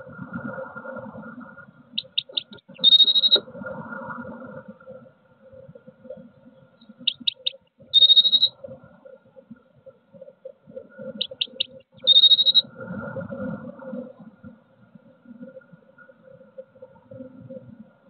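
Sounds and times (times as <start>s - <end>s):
faint steady hum: 0.0s - 18.0s
bird song with trill: 2.0s - 3.4s, 7.0s - 8.5s, 11.2s - 12.6s.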